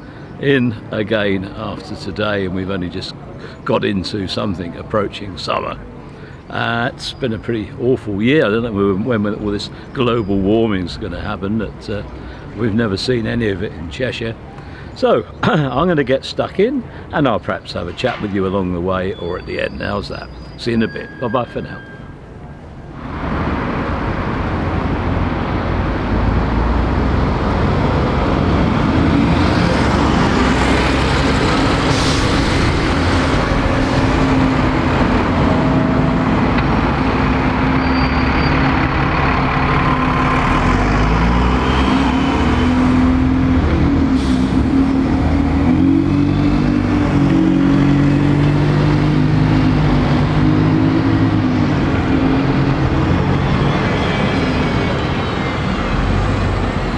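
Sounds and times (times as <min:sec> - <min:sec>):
bus engines in traffic: 0:00.0 - 0:56.9
air brake hisses: 0:44.1 - 0:44.7.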